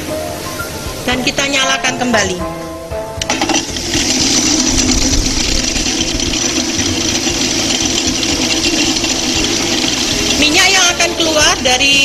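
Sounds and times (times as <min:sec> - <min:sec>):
oil spinner running: 0:03.2 - 0:12.0.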